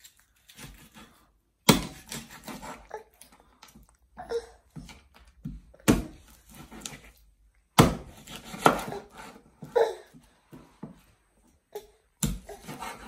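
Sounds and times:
knife chopping on wooden board: 0:07.8 - 0:09.3.

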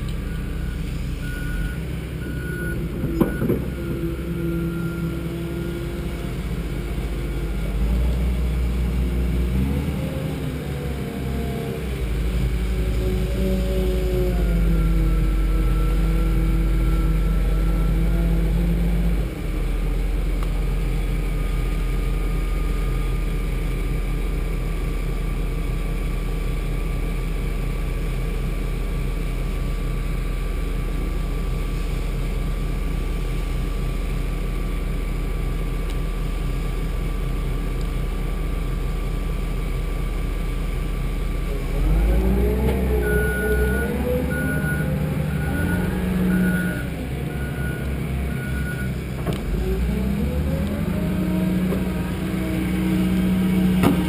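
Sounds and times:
diesel engine running: 0:00.0 - 0:54.0
reversing alarm beeping: 0:00.2 - 0:06.0, 0:14.6 - 0:18.2, 0:43.0 - 0:49.0.

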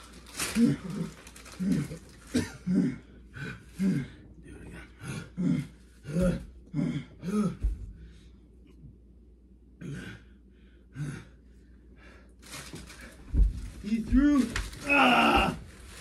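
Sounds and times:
person grunting and gasping: 0:00.4 - 0:07.8, 0:09.8 - 0:11.4, 0:14.2 - 0:15.7.

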